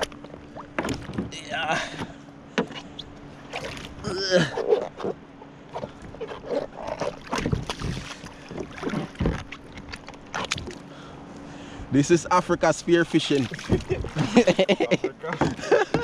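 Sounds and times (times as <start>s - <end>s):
faint steady hum: 0.0s - 16.0s
fins splashing water: 3.5s - 11.0s, 12.8s - 16.0s.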